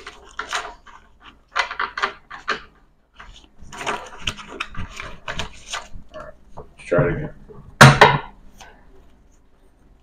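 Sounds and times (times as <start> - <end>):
playing cards shuffling: 3.2 - 6.4.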